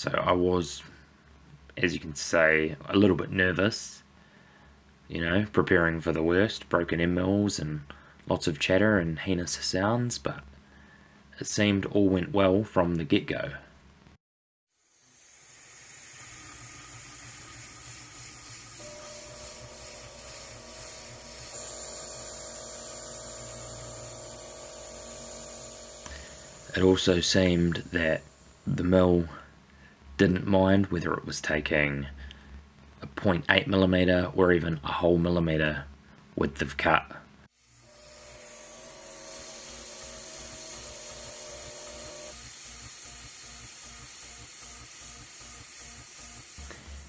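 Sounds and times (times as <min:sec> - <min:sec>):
end mill cutting steel: 0:15.2 - 0:28.8, 0:37.7 - 0:43.4
coolant spray hiss: 0:15.3 - 0:28.7
milling machine spindle hum: 0:15.7 - 0:28.8, 0:37.6 - 0:42.4.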